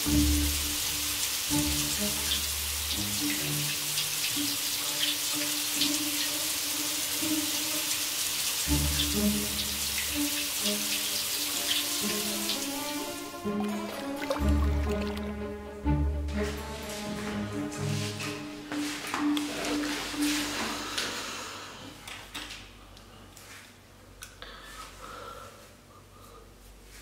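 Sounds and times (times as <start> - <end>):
slow low background music: 0.0 - 7.8, 8.6 - 20.6
shower water splashing on tile: 0.0 - 15.4.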